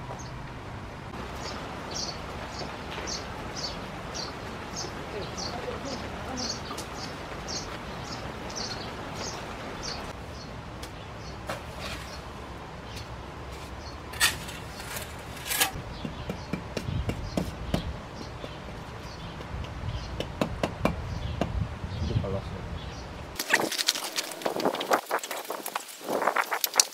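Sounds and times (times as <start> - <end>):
birds chirping: 1.2 - 25.6
trowel scraping mortar: 13.6 - 15.8.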